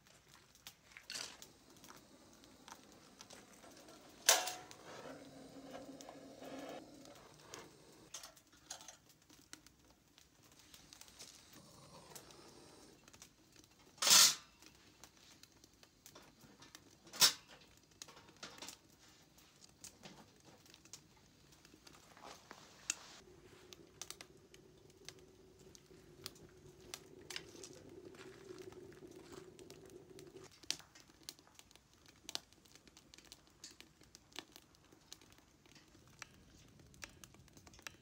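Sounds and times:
metal stove clanking: 3.5 - 8.3.

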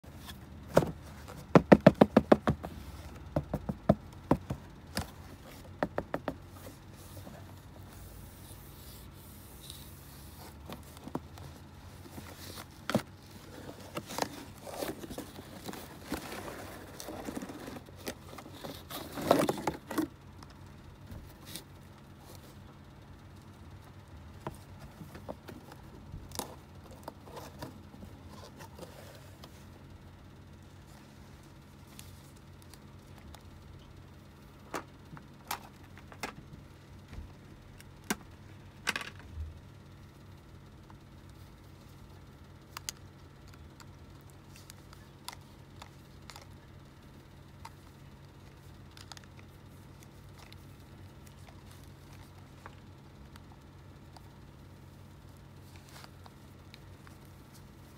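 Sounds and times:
cardboard rustle: 0.1 - 20.1
toy box and toys knocking: 0.7 - 4.6, 5.7 - 6.4.

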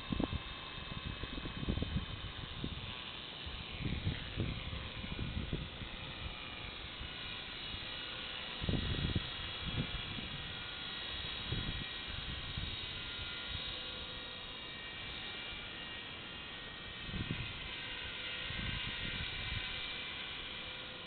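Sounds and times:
rc helicopter motor whine: 0.0 - 21.0.

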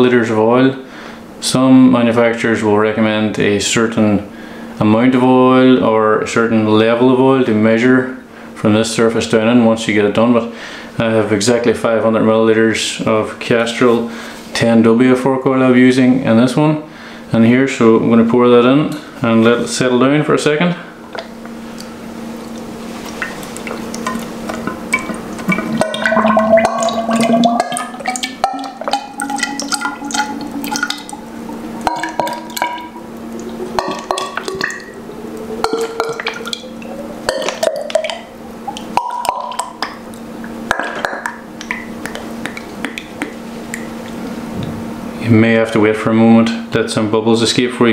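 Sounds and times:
oil glugging from a bottle: 21.1 - 44.2
hollow tone rising in pitch: 23.8 - 38.8.

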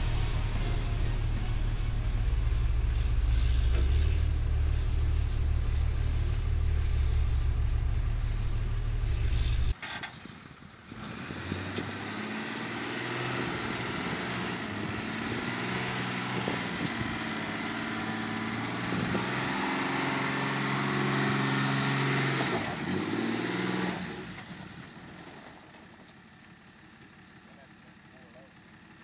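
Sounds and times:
truck engine working hard: 0.0 - 29.0.

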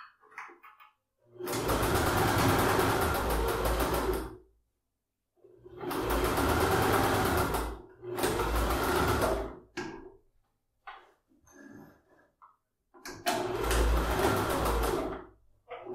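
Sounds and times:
sewing machine stitching: 1.3 - 4.5, 5.5 - 10.1, 13.1 - 15.9.

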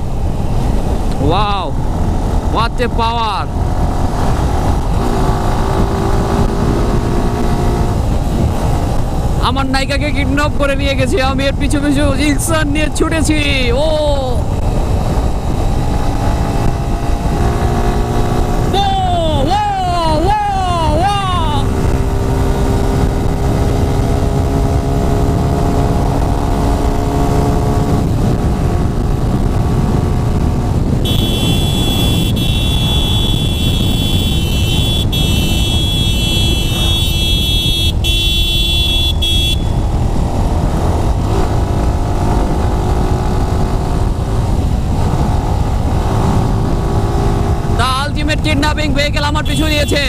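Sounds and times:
wind rush on microphone: 0.0 - 50.0
motorcycle engine running: 13.6 - 48.0.

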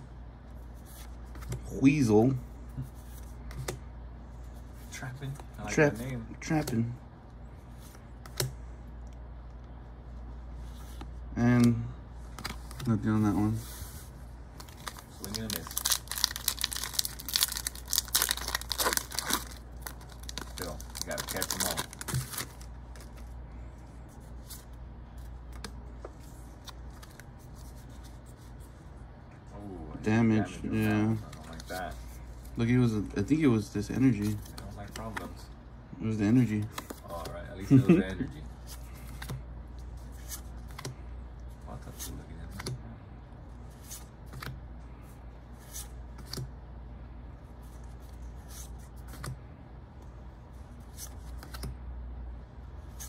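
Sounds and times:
steady low hum: 0.0 - 53.0
cards clicking and snapping: 46.2 - 46.5.

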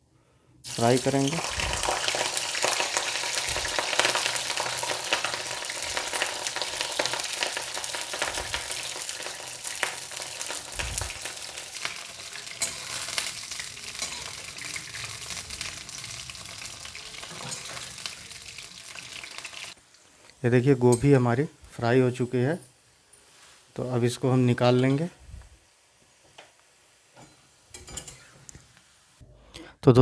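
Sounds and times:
frying oil crackling sizzle: 0.7 - 29.2
spatula stirring: 9.2 - 15.3.

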